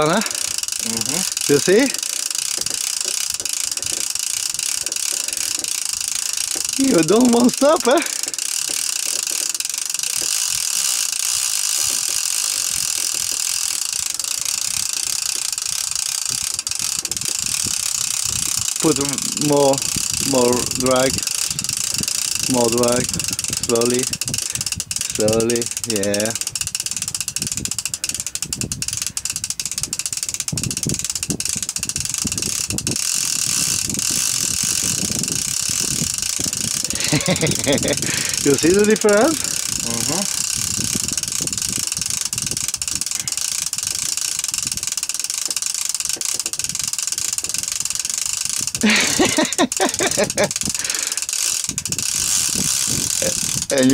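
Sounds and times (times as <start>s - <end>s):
fishing reel drag clicking: 0.0s - 53.9s.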